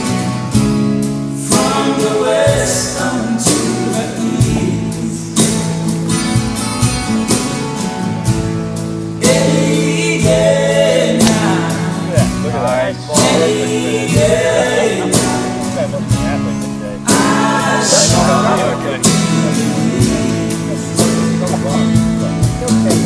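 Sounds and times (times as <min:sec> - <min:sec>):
strummed acoustic guitar: 0:00.0 - 0:23.0
person singing: 0:01.4 - 0:05.8, 0:09.2 - 0:23.0.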